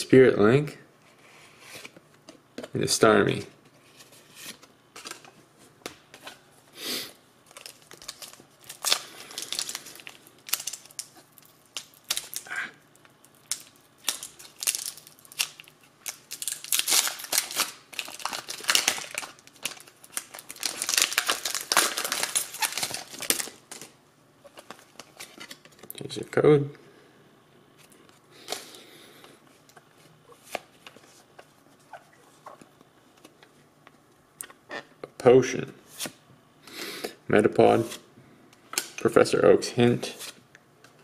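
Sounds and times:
foil wrapper crinkling and tearing: 0:07.4 - 0:23.9.

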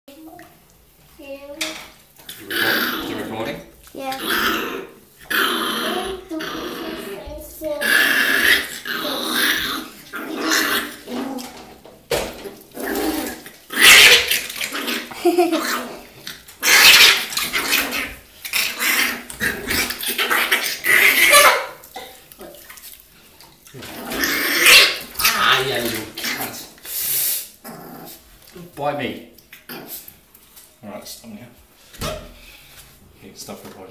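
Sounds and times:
water splashing in bathtub: 0:00.1 - 0:33.9
puppy growling and snarling: 0:01.6 - 0:22.2, 0:23.7 - 0:28.6, 0:29.5 - 0:30.3.

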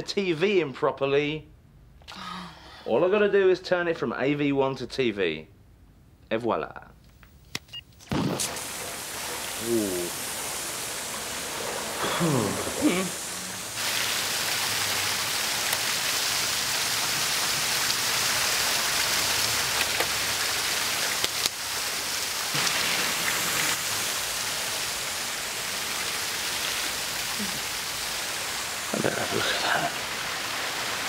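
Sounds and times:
water pouring and splashing: 0:08.1 - 0:31.0.

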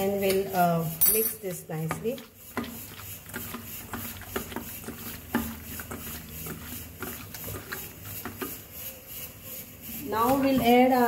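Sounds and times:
wet squelching of meat by hand: 0:02.1 - 0:08.6.

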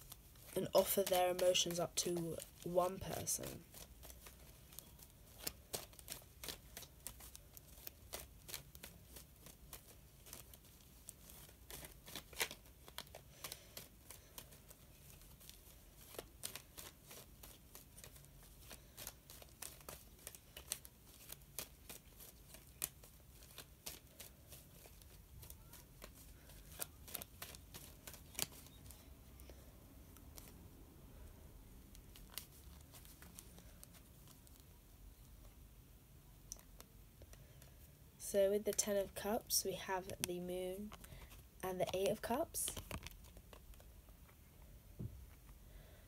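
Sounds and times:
cards being shuffled: 0:00.0 - 0:35.6, 0:40.0 - 0:46.0.

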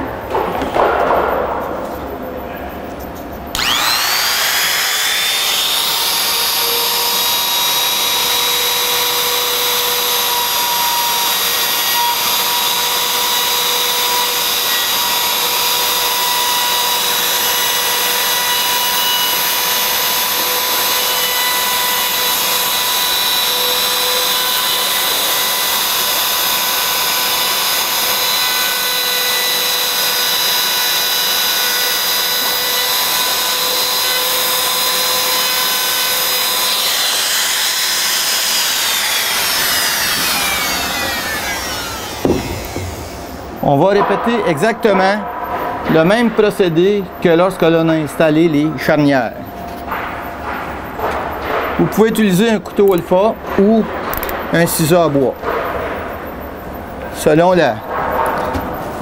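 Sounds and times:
trim router whining: 0:03.5 - 0:43.7.

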